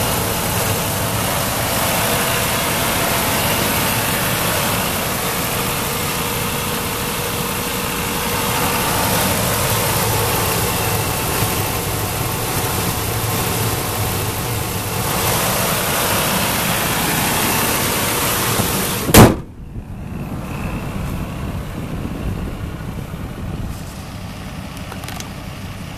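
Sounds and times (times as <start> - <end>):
truck engine idling: 0.0 - 25.9
hood slamming shut: 18.5 - 19.7.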